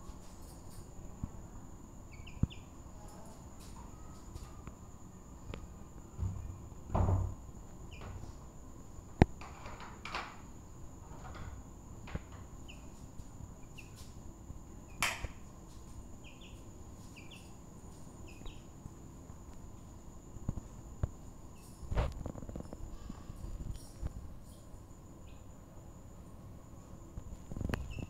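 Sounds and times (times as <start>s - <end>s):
chicks cheeping: 2.1s - 2.8s, 12.6s - 13.0s, 13.6s - 14.2s, 16.2s - 17.6s, 18.2s - 18.7s, 27.5s - 28.0s.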